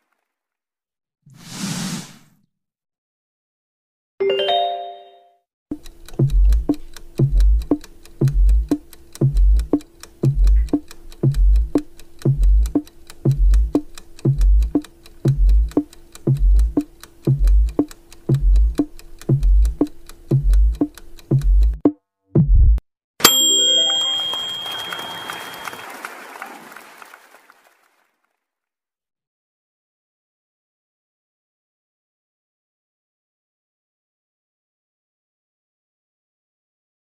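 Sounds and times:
short chime: 4.2 - 5.4, 23.2 - 26.1
fast clock ticking: 5.7 - 21.9
held tone: 23.2 - 25.9.

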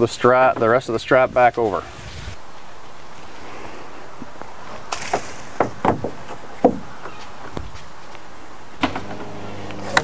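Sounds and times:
low steady hum: 8.7 - 10.0.

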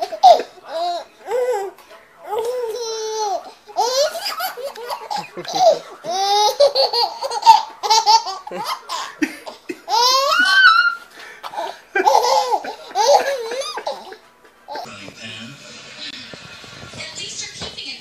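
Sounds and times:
baby laughing: 0.0 - 14.9
baby squealing: 9.9 - 11.1.

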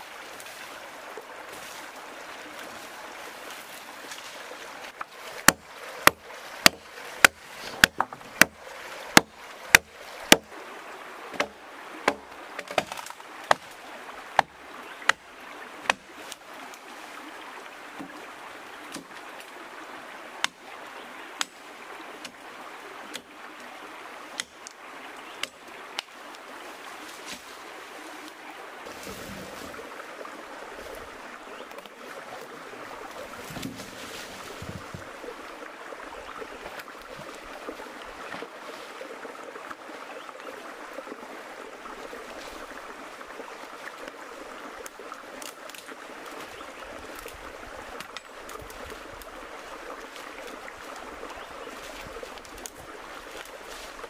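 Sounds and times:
small stream running: 0.0 - 54.0
blade chopping wood: 5.0 - 10.6, 11.3 - 13.7, 15.8 - 16.1.

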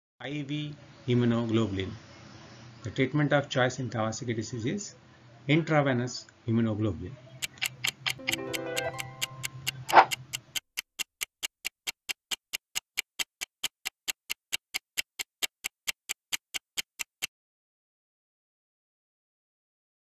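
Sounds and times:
clock ticking: 7.4 - 17.3
background music chord: 8.2 - 9.7.

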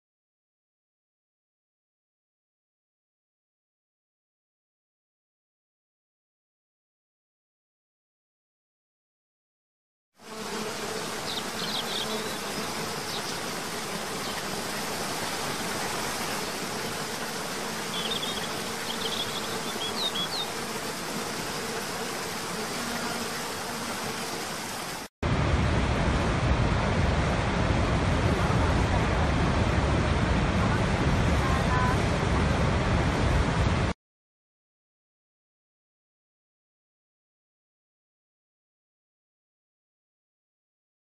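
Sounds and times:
buzzing insect drone: 10.2 - 25.1
large waterfall roaring: 24.7 - 34.0.

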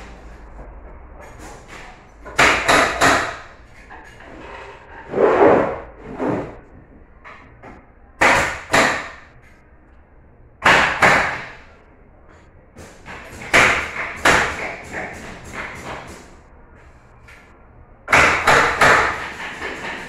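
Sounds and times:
nail gun firing: 18.1 - 20.0.

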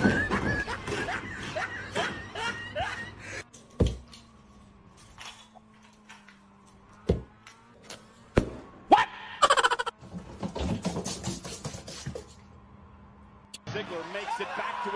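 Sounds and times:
person giggling: 0.0 - 3.4, 9.4 - 9.9.

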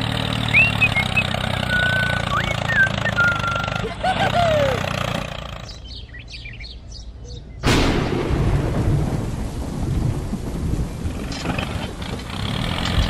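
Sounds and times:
thunderclap and rumbling thunder: 7.6 - 13.0
heavy rain: 7.7 - 13.0.

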